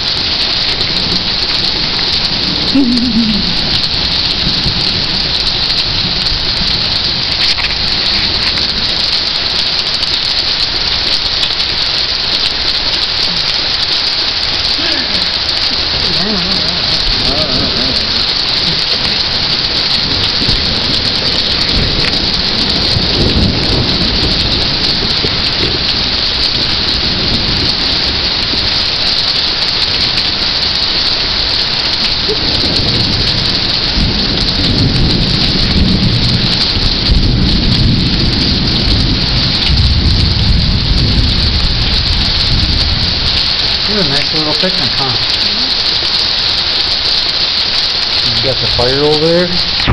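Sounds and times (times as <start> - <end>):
heavy rain pouring: 0.0 - 49.9
low rumble: 1.3 - 9.5, 14.3 - 28.8.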